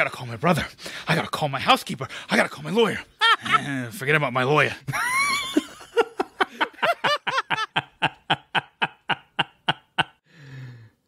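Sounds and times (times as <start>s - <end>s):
person laughing in rhythmic bursts: 4.9s - 10.2s.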